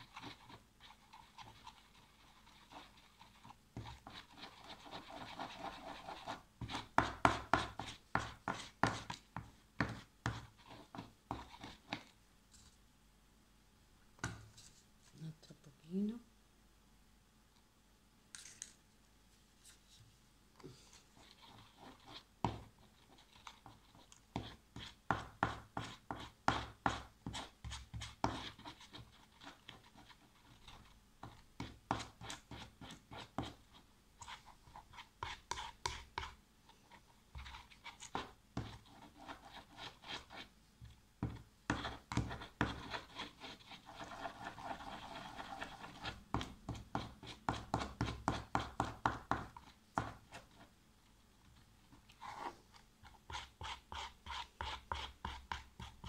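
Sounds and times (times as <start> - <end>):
spoon scraping slime in plastic tub: 20.9 - 40.5, 41.3 - 50.6.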